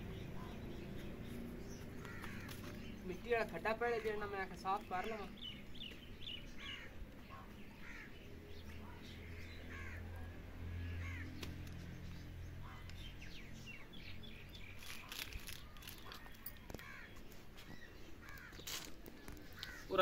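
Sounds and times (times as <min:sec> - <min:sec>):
birds chirping: 0:00.0 - 0:20.0
crows cawing: 0:02.0 - 0:02.8, 0:03.8 - 0:05.3, 0:06.6 - 0:07.0, 0:07.8 - 0:08.2, 0:09.4 - 0:10.2, 0:10.8 - 0:11.4, 0:16.7 - 0:17.2, 0:18.2 - 0:20.0.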